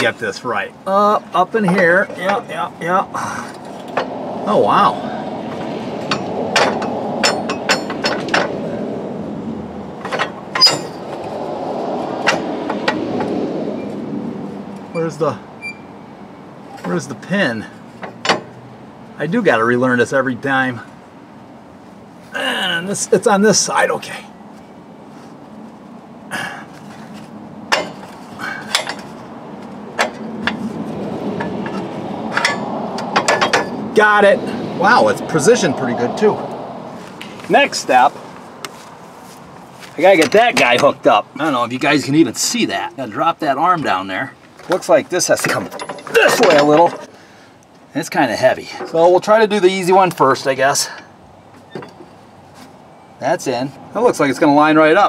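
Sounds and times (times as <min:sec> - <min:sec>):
sharp metal knocks: 0:05.5 - 0:08.7, 0:10.0 - 0:11.3, 0:12.2 - 0:13.4, 0:18.0 - 0:18.6, 0:27.7 - 0:29.3, 0:29.9 - 0:33.9, 0:44.6 - 0:47.1
metal parts clinking: 0:27.7 - 0:29.2, 0:31.4 - 0:33.8, 0:45.4 - 0:47.1
metal clicks: 0:31.4 - 0:33.8.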